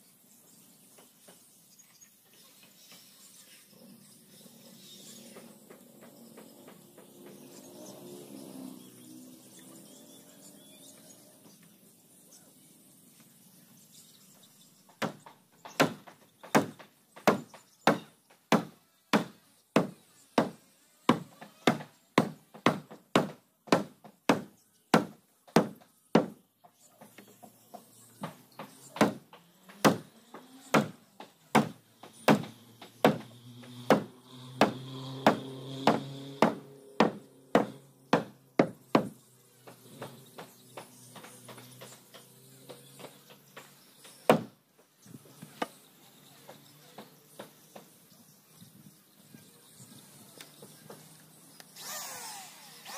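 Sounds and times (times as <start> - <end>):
hammer blows on wooden hull: 31.6 - 39.2.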